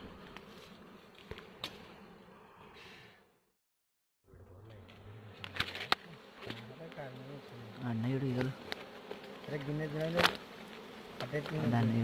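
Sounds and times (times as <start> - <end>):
bees buzzing: 4.4 - 12.0.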